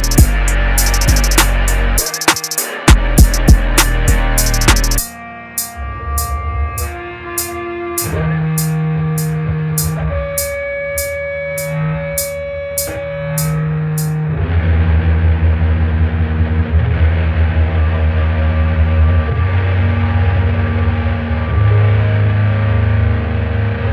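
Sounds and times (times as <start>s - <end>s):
sharp ticking: 0.0s - 3.6s, 4.4s - 6.3s, 7.4s - 14.2s
held guitar notes: 0.0s - 14.6s
dense music with heavy bass: 0.0s - 23.9s.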